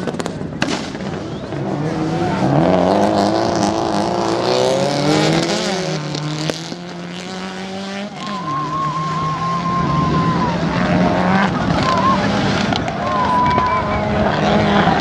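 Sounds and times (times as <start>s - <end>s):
rally car engine revving: 0.0s - 15.0s.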